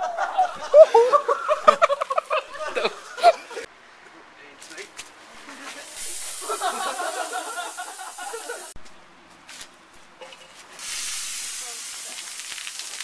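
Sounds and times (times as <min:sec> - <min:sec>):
soda geyser hissing: 0:05.8 - 0:08.8, 0:10.8 - 0:13.0.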